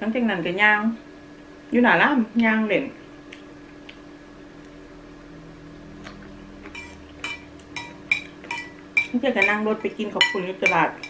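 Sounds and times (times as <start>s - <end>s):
faint steady hum: 0.0s - 11.0s
metal spoon clinking on a bowl: 6.8s - 9.6s, 10.2s - 11.0s.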